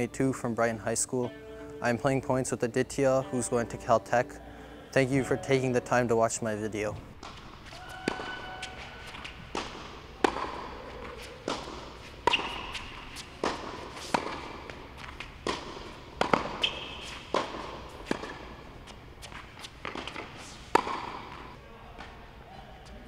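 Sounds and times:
tennis ball bouncing: 7.2 - 22.1
tennis ball hitting rackets: 7.2 - 22.1.

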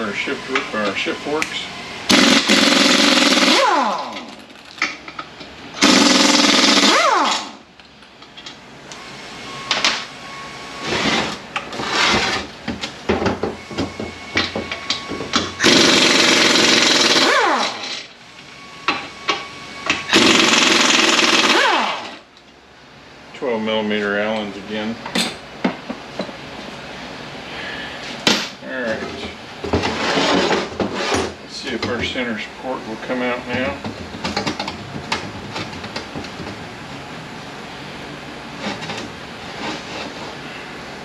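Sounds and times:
pneumatic impact wrench hammering: 2.1 - 4.4, 5.8 - 7.6, 13.1 - 18.2, 18.9 - 22.2.

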